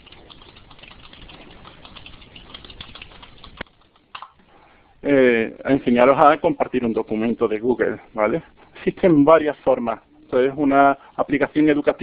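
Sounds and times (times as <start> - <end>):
computer keyboard typing: 0.0 - 4.4.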